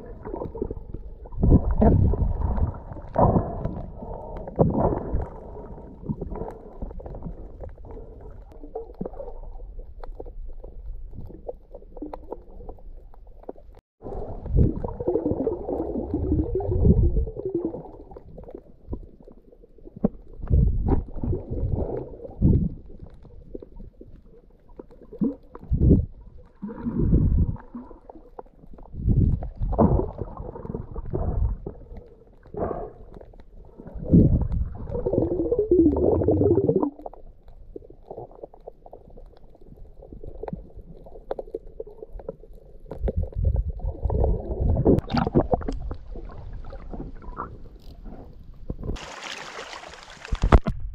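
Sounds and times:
muffled underwater rumbling: 0:00.0 - 0:49.2
water surges: 0:49.0 - 0:50.7.

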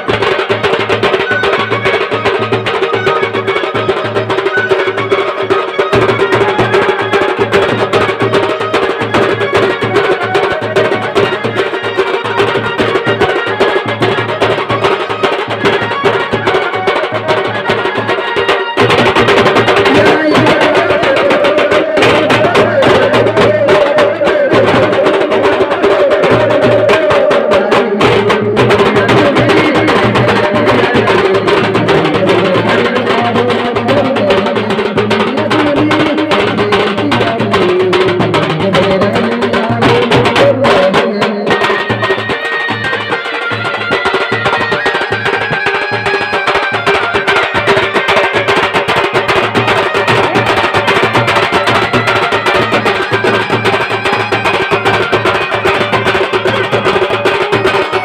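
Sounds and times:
clacking percussion: 0:00.0 - 0:58.0
fast dense drumming: 0:00.0 - 0:58.0.

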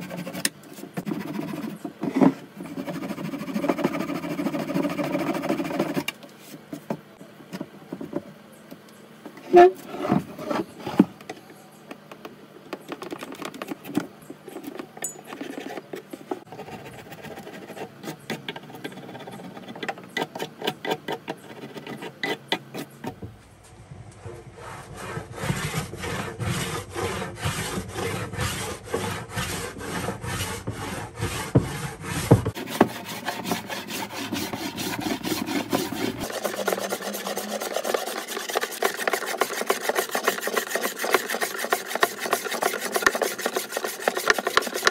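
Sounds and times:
hand plane shaving wood: 0:00.0 - 0:06.1, 0:16.4 - 0:23.0, 0:24.3 - 0:44.9
chisel scraping wood: 0:14.5 - 0:23.2, 0:24.3 - 0:44.9.

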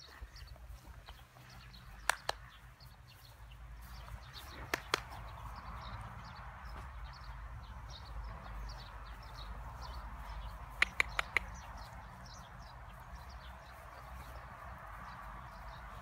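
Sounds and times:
small birds chirping: 0:00.0 - 0:16.0
short sharp clicks: 0:02.0 - 0:02.4, 0:04.7 - 0:05.2, 0:10.8 - 0:11.6.

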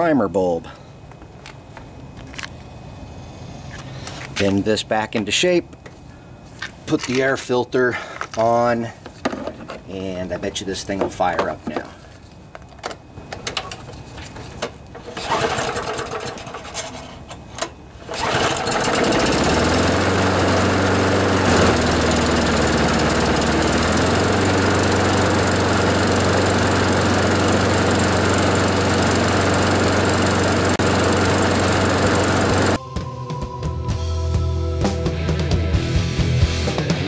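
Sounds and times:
lawnmower engine starting and running: 0:13.3 - 0:32.8.

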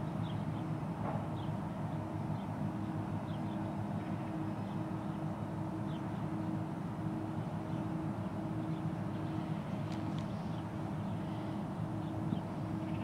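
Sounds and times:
low drone of diesel engines: 0:00.0 - 0:13.0.

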